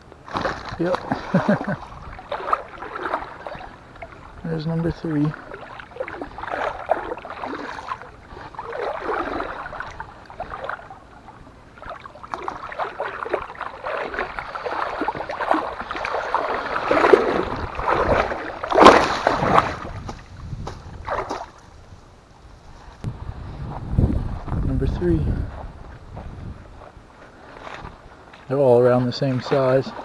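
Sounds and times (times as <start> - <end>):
fish splashing at the surface: 0.3 - 4.4, 5.0 - 11.2, 11.8 - 20.1, 21.0 - 21.6.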